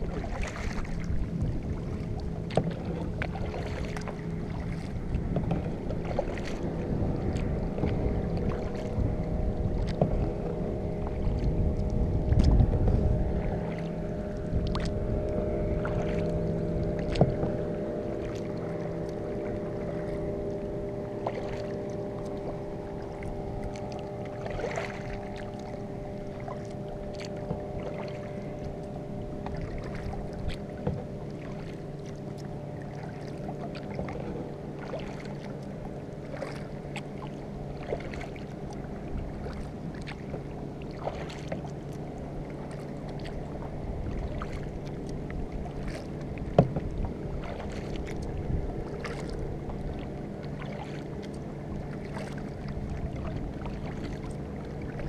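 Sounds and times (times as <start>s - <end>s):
paddle splashing in water: 0.0s - 55.0s
steady low hum: 0.0s - 55.0s
paddle knocks: 17.0s - 17.6s, 45.8s - 48.2s.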